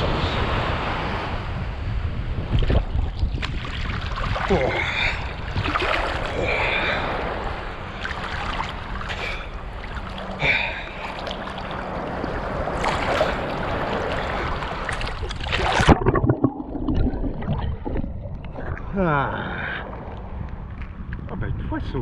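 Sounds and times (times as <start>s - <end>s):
wind on microphone: 0.0s - 8.9s, 11.7s - 22.0s
seawater sloshing and splashing: 2.5s - 19.0s.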